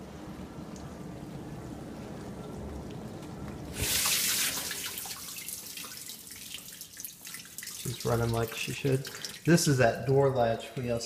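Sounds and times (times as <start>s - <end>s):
dishwasher humming: 0.0s - 6.0s
water dripping and splashing: 0.6s - 10.4s
rush of spray: 3.7s - 5.0s
water swishing inside dishwasher: 3.7s - 10.3s.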